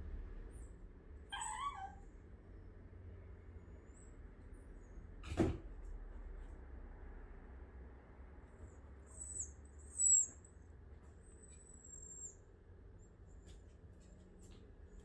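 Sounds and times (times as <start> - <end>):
puppy whining: 1.2 - 2.1, 9.0 - 10.5, 11.3 - 12.5.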